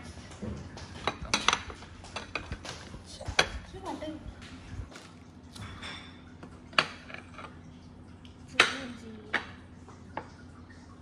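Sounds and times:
faint steady hum: 0:00.0 - 0:11.0
dishes clinking on glass table: 0:00.3 - 0:03.6, 0:05.5 - 0:07.6.

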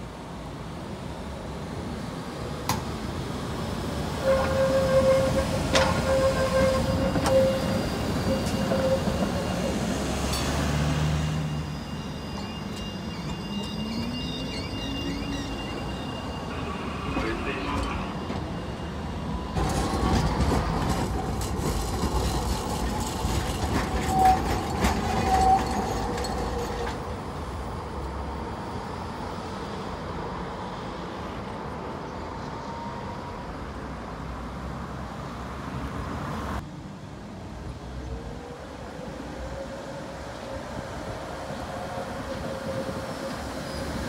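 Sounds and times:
tram wheels clicking over rail joints: 0:04.2 - 0:10.6, 0:19.6 - 0:27.2.

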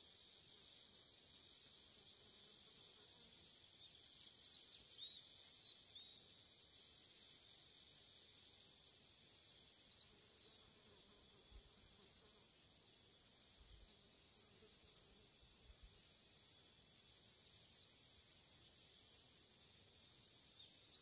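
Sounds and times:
high-pitched insect chorus: 0:00.0 - 0:21.0.

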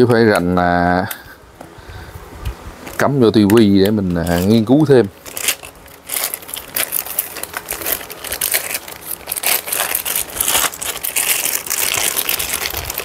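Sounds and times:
packaging crinkling and rustling: 0:02.9 - 0:13.0.

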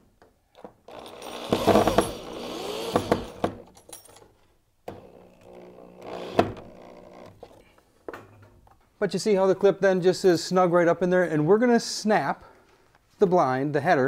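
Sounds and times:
electric drill into wood: 0:00.9 - 0:03.7, 0:04.9 - 0:07.6.

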